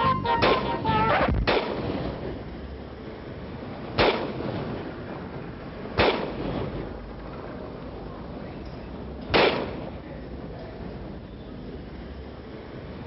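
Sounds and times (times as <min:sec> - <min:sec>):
sharp bangs: 0:00.0 - 0:02.1, 0:04.0 - 0:04.4, 0:06.0 - 0:06.6, 0:09.3 - 0:09.8
steady low hiss: 0:00.0 - 0:13.0.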